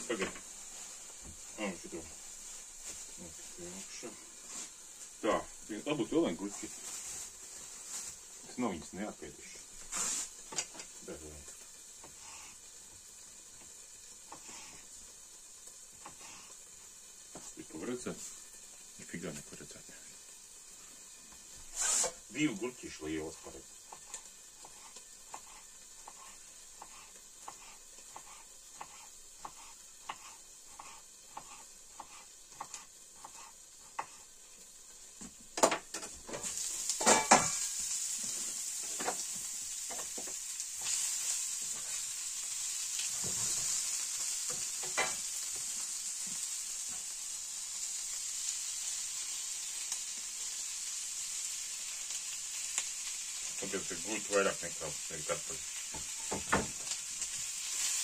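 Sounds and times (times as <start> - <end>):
food sizzling in a frying pan: 0.0 - 58.0
frying pan lid clattering: 35.6 - 37.7.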